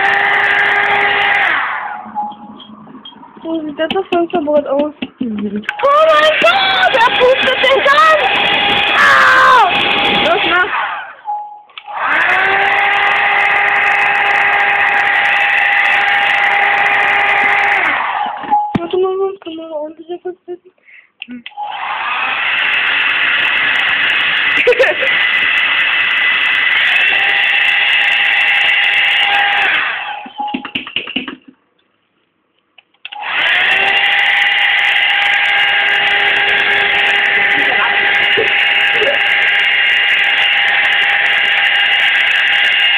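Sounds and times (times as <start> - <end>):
hair dryer running: 0.0 - 2.0, 5.8 - 11.2, 11.8 - 18.5, 21.6 - 30.3, 33.1 - 42.9
electric motor whining: 0.0 - 2.1, 5.7 - 11.2, 11.8 - 18.4, 21.6 - 30.3, 33.2 - 42.9.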